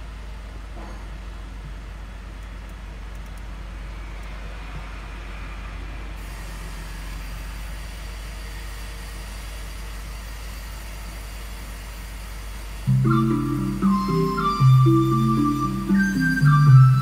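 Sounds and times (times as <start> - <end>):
hiss: 6.2 - 12.9.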